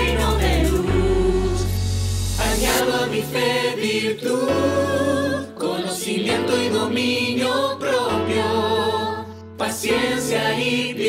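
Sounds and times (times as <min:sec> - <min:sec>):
mixed choir singing: 0:00.0 - 0:01.8, 0:02.4 - 0:11.0.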